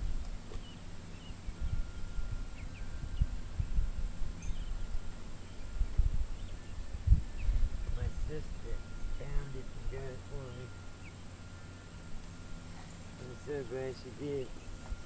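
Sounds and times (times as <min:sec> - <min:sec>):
low wind rumble: 0:00.0 - 0:15.0
faint bird chirps: 0:00.4 - 0:15.0.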